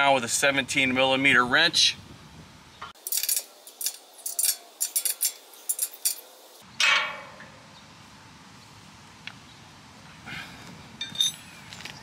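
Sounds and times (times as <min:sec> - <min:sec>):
ratcheting wrench clicking: 0:03.0 - 0:06.2.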